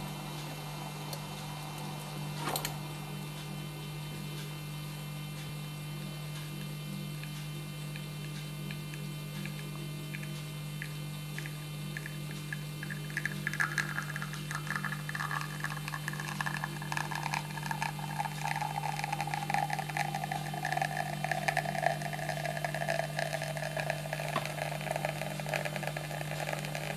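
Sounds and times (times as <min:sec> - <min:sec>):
electrical mains hum: 0:00.0 - 0:26.9
faint ticks of dripping espresso: 0:06.4 - 0:26.9.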